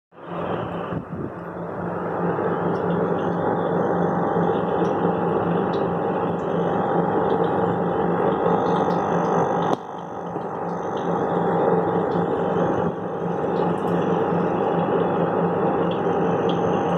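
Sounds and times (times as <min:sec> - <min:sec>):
aquarium pump humming: 0:00.1 - 0:16.9.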